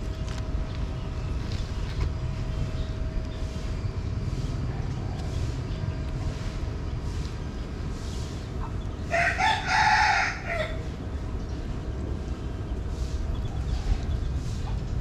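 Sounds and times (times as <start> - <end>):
steady low rumble: 0.0 - 15.0
rooster crowing: 9.1 - 10.9.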